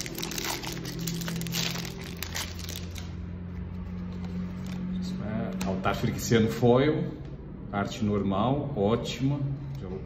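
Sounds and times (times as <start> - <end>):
foil wrapper crinkling: 0.0 - 3.1.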